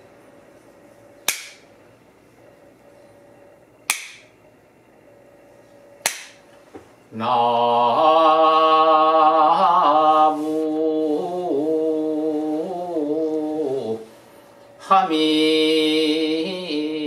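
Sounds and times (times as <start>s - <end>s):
bamboo clapper cracks: 1.3s - 1.6s, 3.9s - 4.3s, 6.0s - 6.4s
man chanting: 7.1s - 14.1s.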